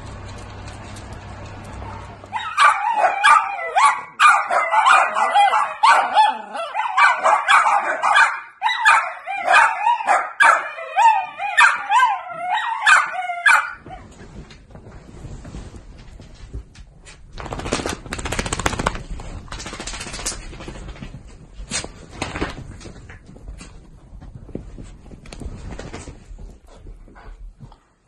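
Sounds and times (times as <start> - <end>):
dogs yipping: 1.8 - 14.0
dogs howling: 1.9 - 13.8.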